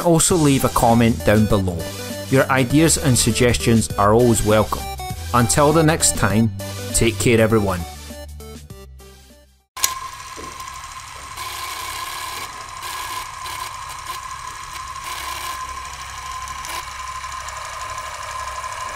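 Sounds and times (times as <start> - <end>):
film projector clatter and whir: 9.8 - 18.9.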